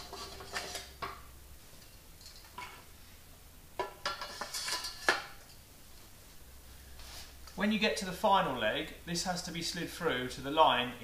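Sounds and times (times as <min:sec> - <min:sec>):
metal legs clanking and scraping: 0:03.8 - 0:05.4.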